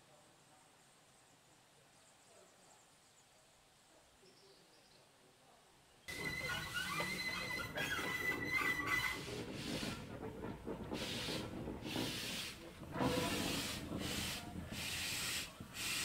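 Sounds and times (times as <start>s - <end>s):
thin high squeal: 6.1s - 10.0s
steam locomotive puffing: 6.1s - 16.0s.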